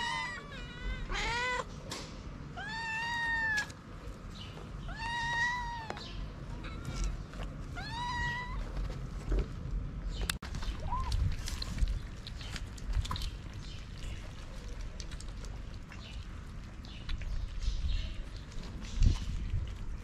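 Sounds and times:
cat meowing: 0.0 - 1.7, 2.6 - 3.8, 4.8 - 6.1, 7.7 - 8.8.

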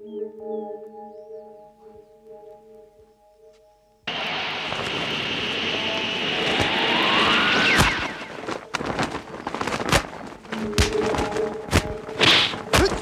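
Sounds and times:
background music: 0.0 - 4.0, 9.6 - 13.0
rising whoosh: 4.1 - 9.2
sharp hits and thuds: 7.8 - 13.0.

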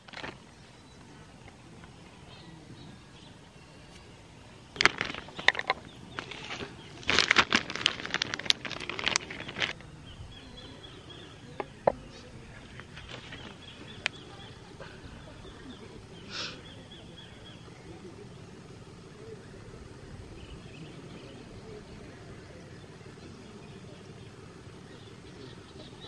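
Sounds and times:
faint steady high tone: 0.4 - 4.8.

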